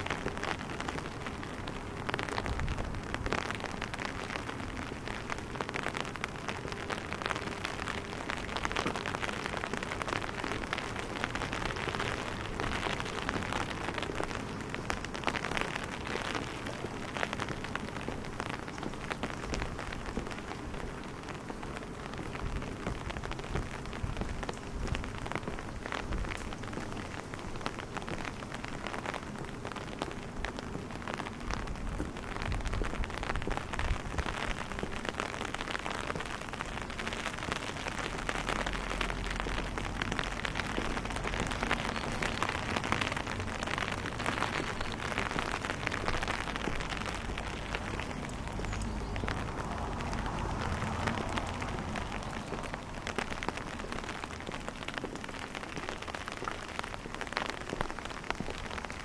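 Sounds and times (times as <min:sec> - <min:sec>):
rain on cobblestones: 0:00.0 - 0:59.0.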